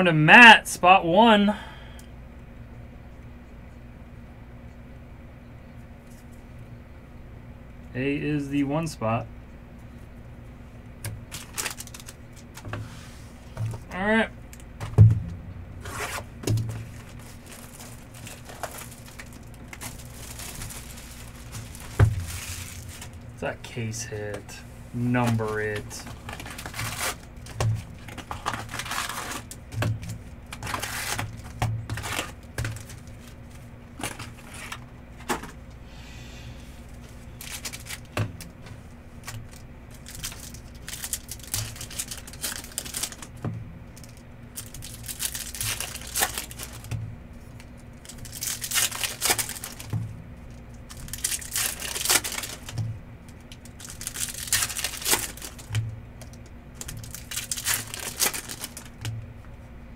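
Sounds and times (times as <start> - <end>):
low hum: 9.2 - 42.2
foil wrappers crinkling and tearing: 11.0 - 14.9, 15.8 - 24.4, 25.1 - 35.5, 36.9 - 38.6, 39.2 - 59.2.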